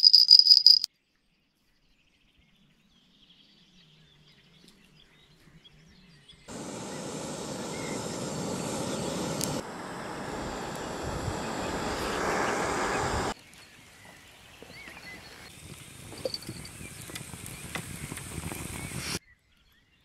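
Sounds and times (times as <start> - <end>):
bite alarm bell jingling: 0.0 - 0.9
outdoor background noise: 2.7 - 19.2.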